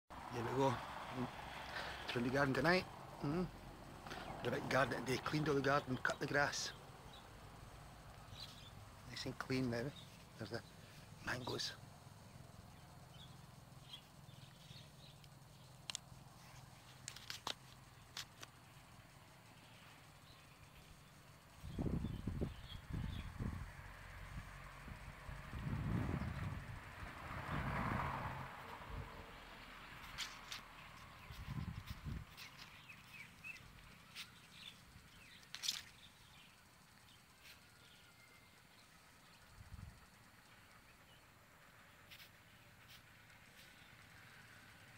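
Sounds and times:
faint bird chirps: 8.0s - 17.0s, 17.8s - 23.6s, 30.0s - 44.8s
scattered clicks: 15.2s - 16.2s
faint high chirps: 30.1s - 41.3s.

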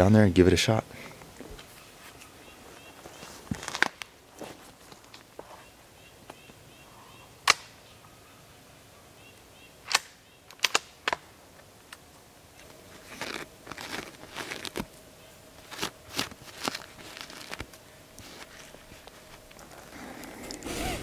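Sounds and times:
footsteps on pine needles and twigs: 1.6s - 5.7s, 12.9s - 14.9s, 15.6s - 20.0s.

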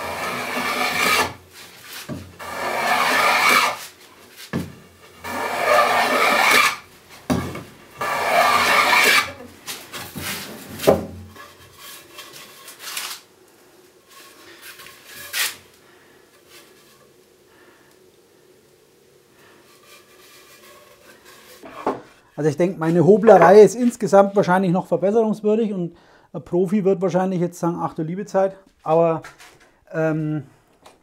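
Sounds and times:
hand plane rasping on wood: 0.0s - 1.4s, 2.4s - 3.8s, 5.2s - 6.8s, 8.0s - 9.4s.

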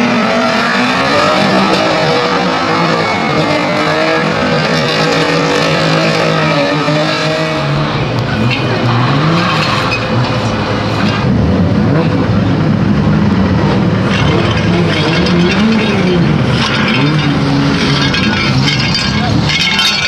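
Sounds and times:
car engine revving unevenly: 0.0s - 20.0s.

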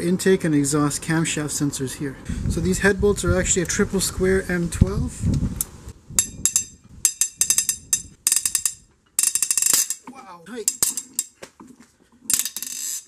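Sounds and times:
ratchet wrench clicking: 6.2s - 10.0s, 10.6s - 11.4s, 12.3s - 13.0s.

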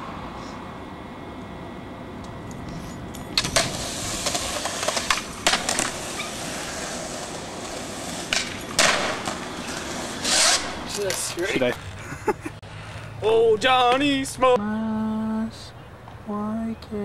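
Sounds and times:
steady background hiss: 0.0s - 17.0s
skateboard rolling on concrete: 2.0s - 12.6s
skateboard clacking on ground: 2.2s - 11.9s.

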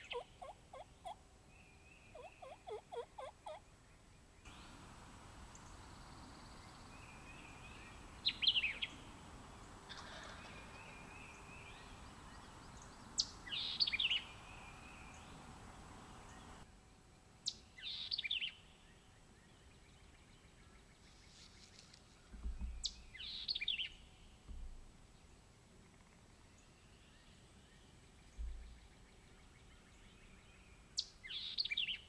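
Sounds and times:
faint songbirds: 0.0s - 32.0s
turkey gobbling: 2.2s - 3.6s.

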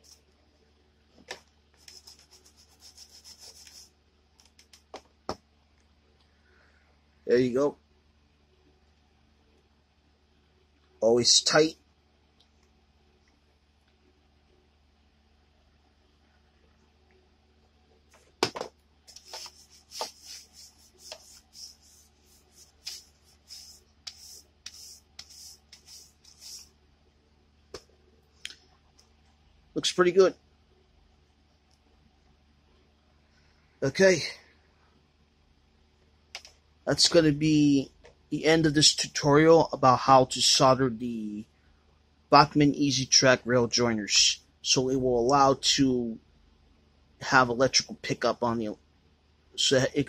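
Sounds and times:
scratchy rubbing: 1.8s - 3.9s, 19.1s - 26.7s.

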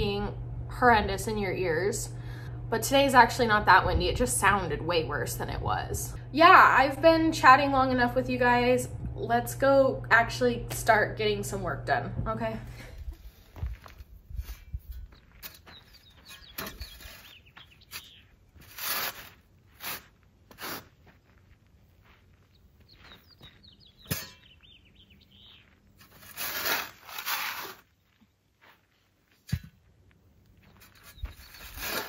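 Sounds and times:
shovel digging sandy ground: 13.9s - 21.0s, 26.0s - 28.0s, 30.7s - 32.0s
faint birds chirping: 14.9s - 18.6s, 21.2s - 26.0s, 30.1s - 32.0s.

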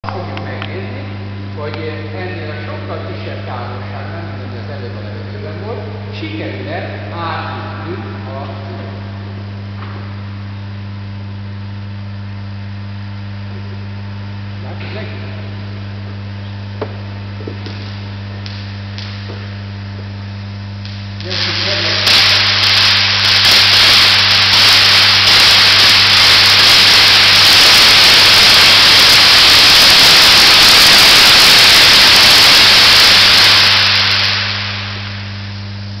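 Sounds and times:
hissing crackle of electrical discharge: 16.6s - 36.0s
transformer humming: 16.8s - 36.0s.

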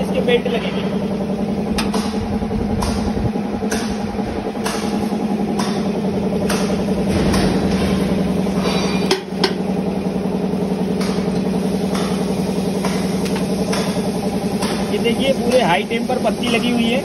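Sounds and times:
machine droning: 0.0s - 17.0s
sharp knocks: 1.8s - 9.6s.

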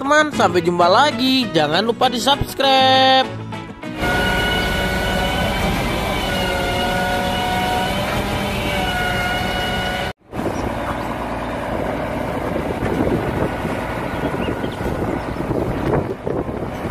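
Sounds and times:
concrete mixer truck running: 3.9s - 16.9s
second mixer truck rough rumble: 3.9s - 16.9s
wind buffeting microphone: 10.3s - 16.9s.

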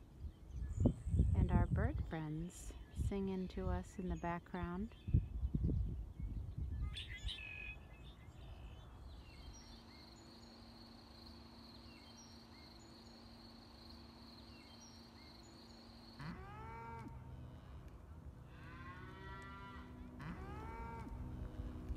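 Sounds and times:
bird chirps: 3.9s - 17.1s
high insect trill: 9.4s - 17.4s
cow mooing: 16.2s - 17.8s, 18.4s - 21.9s.

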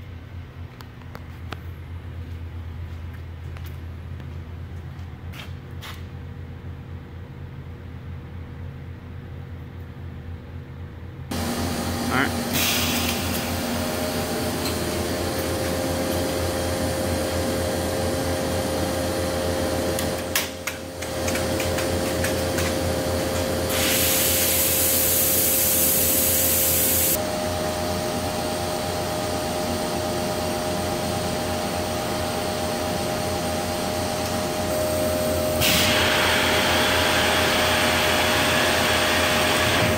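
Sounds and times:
machine hum and whine: 0.0s - 39.9s
rush of air hiss: 23.7s - 27.2s.

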